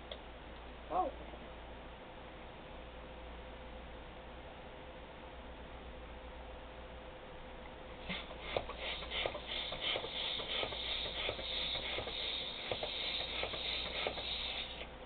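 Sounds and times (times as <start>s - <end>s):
hand pump inflating a balloon: 8.0s - 14.9s.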